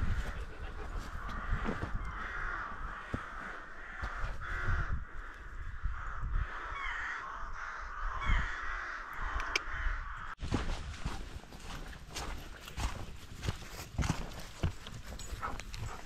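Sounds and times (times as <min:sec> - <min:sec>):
crows cawing: 0:00.0 - 0:10.4.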